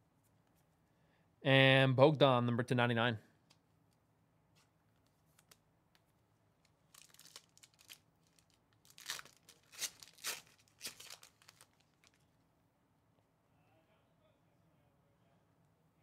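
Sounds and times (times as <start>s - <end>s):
foil wrapper tearing and crinkling: 6.9s - 12.2s.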